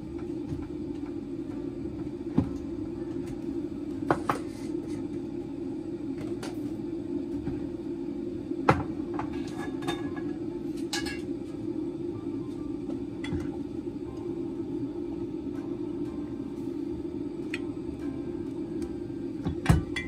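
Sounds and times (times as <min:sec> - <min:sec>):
appliance fan hum: 0:00.0 - 0:20.0
dishes and utensils clinking: 0:09.2 - 0:11.3.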